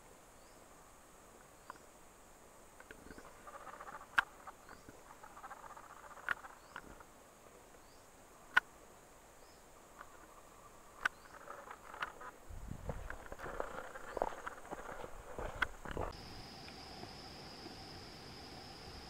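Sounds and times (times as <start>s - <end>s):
insects chirping: 0.0s - 19.0s
faint rustling: 9.9s - 16.2s.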